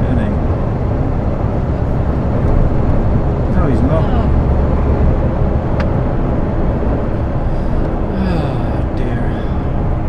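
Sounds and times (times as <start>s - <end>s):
engine and road noise in cab: 0.0s - 10.0s
low steady hum: 0.0s - 10.0s
murmur of a voice: 8.1s - 9.6s.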